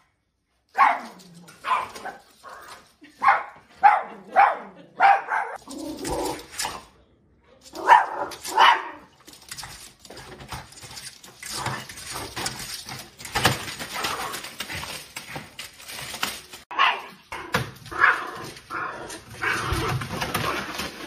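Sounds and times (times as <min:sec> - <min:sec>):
small dog barking: 0:00.8 - 0:02.0, 0:03.2 - 0:05.6, 0:07.8 - 0:09.0, 0:16.7 - 0:17.1
paper rustling through mail slot: 0:07.7 - 0:21.0.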